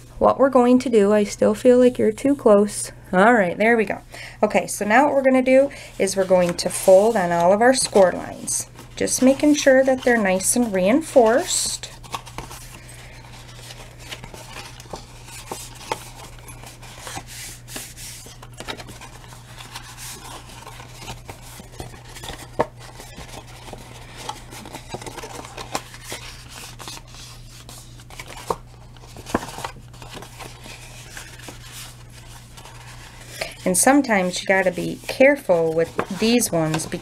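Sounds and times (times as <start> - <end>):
steady low hum: 0.0 - 37.0
cardstock folding and rustling: 4.9 - 37.0
sharp paper crackles: 6.2 - 37.0.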